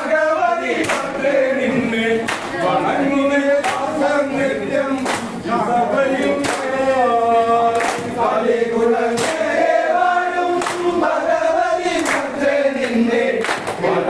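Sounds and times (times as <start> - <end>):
group singing: 0.0 - 14.0
hand claps: 0.8 - 1.2, 2.2 - 2.6, 3.6 - 4.0, 4.9 - 5.4, 6.3 - 7.0, 7.7 - 8.2, 9.1 - 9.6, 10.4 - 11.1, 11.9 - 13.9.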